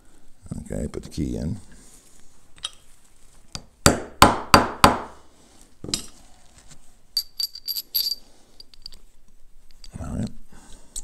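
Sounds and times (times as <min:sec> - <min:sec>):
high-ringing metal clinks: 0:07.2 - 0:09.0
metal parts tapping together: 0:07.2 - 0:09.0.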